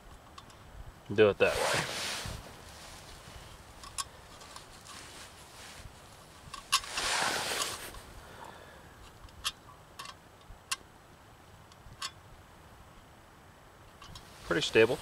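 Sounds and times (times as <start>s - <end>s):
metal cup scraping: 6.6s - 8.0s.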